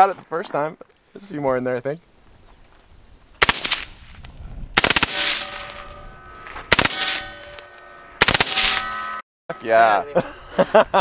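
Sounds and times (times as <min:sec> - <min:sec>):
rifle firing bursts: 0:03.4 - 0:03.8, 0:04.8 - 0:05.7, 0:06.7 - 0:07.2, 0:08.2 - 0:08.8.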